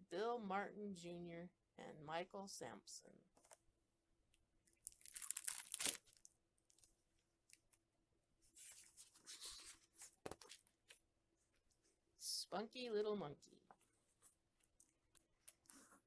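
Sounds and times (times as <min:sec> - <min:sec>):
stiff paper pages rustling: 0:08.5 - 0:11.0.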